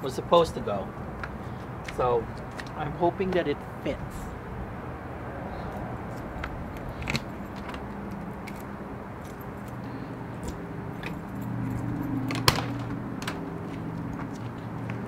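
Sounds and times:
keys jangling in door lock: 5.7 - 9.8, 10.4 - 13.4.

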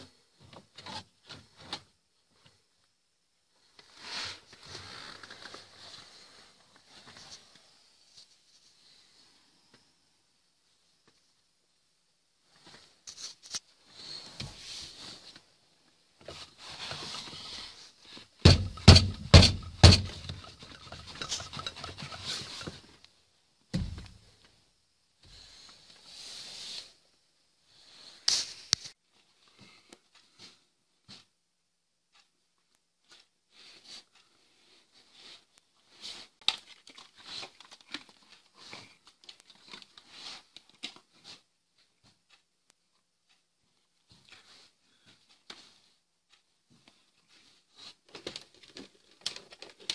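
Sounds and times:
rustling handling noise: 12.4 - 23.1, 44.0 - 49.9
sharp knocks: 18.4 - 20.4.

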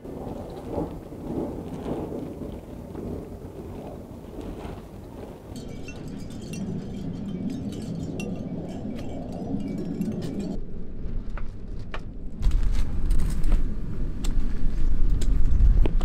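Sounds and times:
gusty wind: 0.0 - 16.0
wind buffeting microphone: 0.0 - 16.0
light metallic chiming: 5.5 - 10.6.

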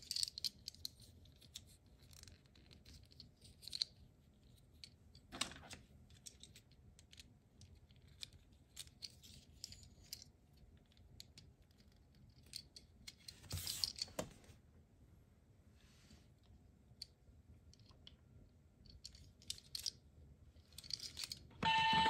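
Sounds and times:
toy handling clatter: 0.0 - 14.4, 18.8 - 20.0, 20.6 - 21.5
plastic toy parts clicking: 18.9 - 20.0, 20.7 - 21.4.

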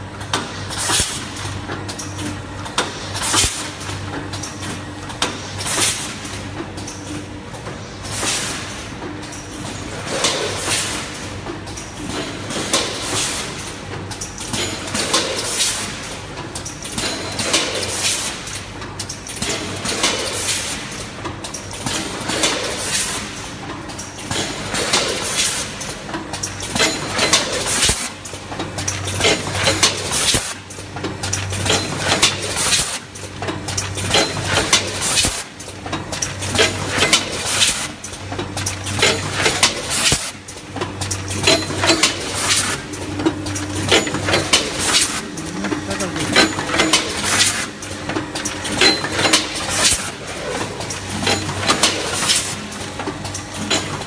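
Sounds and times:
packing machine clacking: 9.2 - 54.0
low machine hum: 40.5 - 51.7.

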